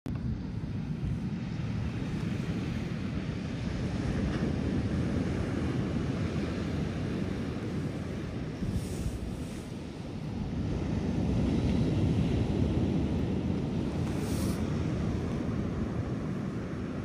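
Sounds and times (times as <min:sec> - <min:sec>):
surf washing on beach: 0:00.1 - 0:17.0
wind blowing across microphone: 0:00.1 - 0:17.0.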